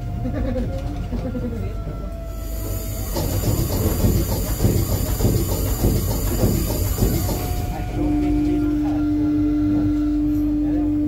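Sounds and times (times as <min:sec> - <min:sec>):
rhythmic knocking of steam engine: 0:00.0 - 0:11.0
steady hiss of steam: 0:02.3 - 0:08.0.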